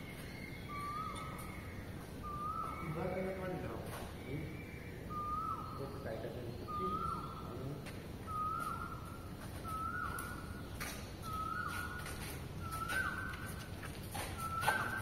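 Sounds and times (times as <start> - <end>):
whistle-like call: 5.1 - 5.8, 14.4 - 15.0.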